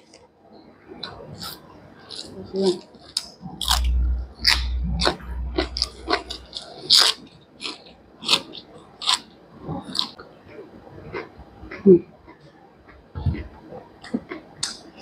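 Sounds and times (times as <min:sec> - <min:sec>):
crunching and chewing greens: 0:01.0 - 0:10.3
low rumble: 0:03.4 - 0:07.1.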